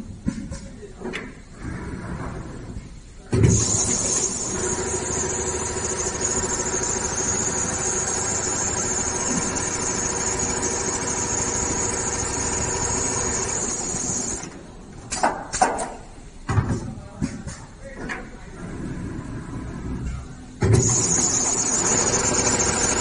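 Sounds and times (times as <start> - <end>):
sewing machine running: 3.5 - 14.6, 20.7 - 23.0.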